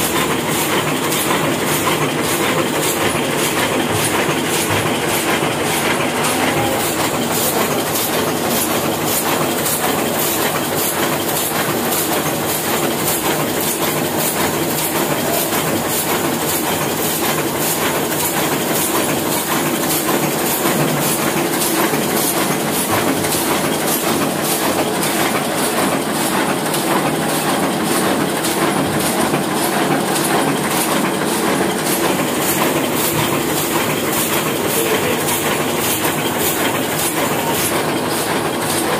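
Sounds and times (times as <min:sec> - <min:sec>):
printing press clattering: 0:00.0 - 0:38.9.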